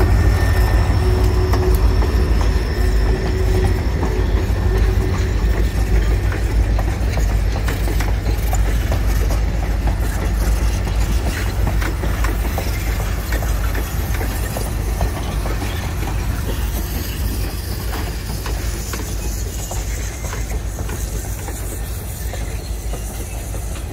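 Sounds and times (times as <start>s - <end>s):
train coaches rumbling past: 0.0s - 23.9s
wheels clicking and clanking: 0.0s - 23.9s.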